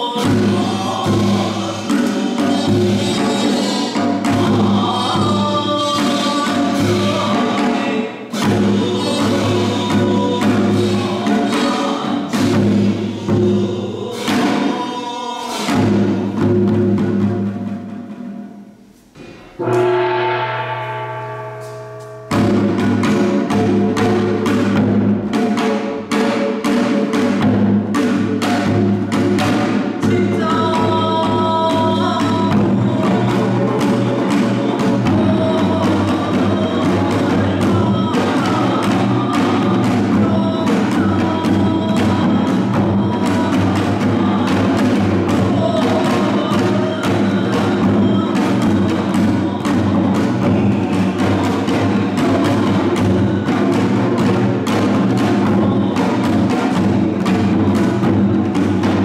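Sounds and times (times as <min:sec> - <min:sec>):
ringing struck tone: 0:19.2 - 0:23.7
held sustained tones: 0:19.2 - 0:24.4
hourglass drums beating: 0:19.2 - 0:25.1.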